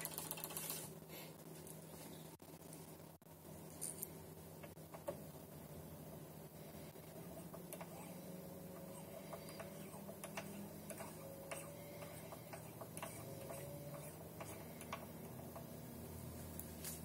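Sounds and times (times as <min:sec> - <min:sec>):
stepper motors humming: 0:05.6 - 0:16.7.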